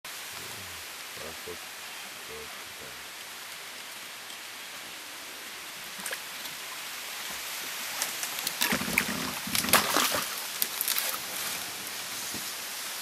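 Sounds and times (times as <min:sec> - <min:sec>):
steady hiss: 0:00.1 - 0:13.0
fish splashing in water: 0:07.9 - 0:11.7.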